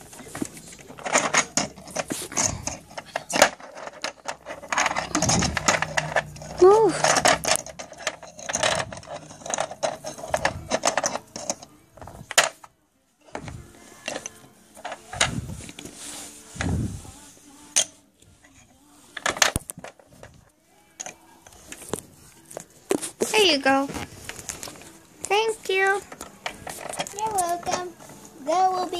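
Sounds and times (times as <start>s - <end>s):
soft rustling: 13.5s - 19.2s.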